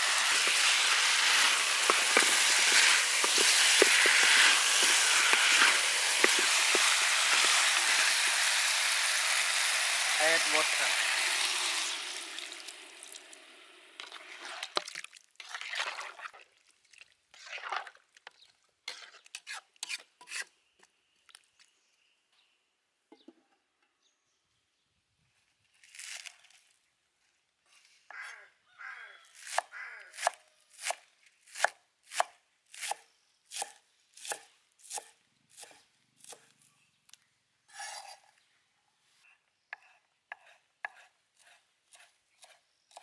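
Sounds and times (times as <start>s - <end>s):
knife scraping board: 1.3s - 7.6s, 18.9s - 20.5s, 37.7s - 38.3s, 39.8s - 43.0s
knife chopping on wooden board: 39.8s - 43.0s.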